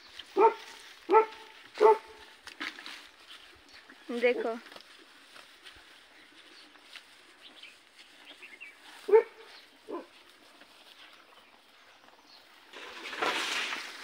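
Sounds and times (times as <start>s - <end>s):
animal barking: 0.4s - 2.3s, 9.1s - 10.2s.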